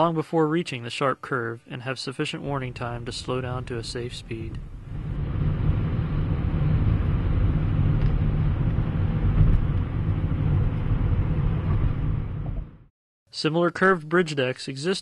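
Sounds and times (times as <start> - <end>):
car road noise at highway speed: 2.7 - 12.9.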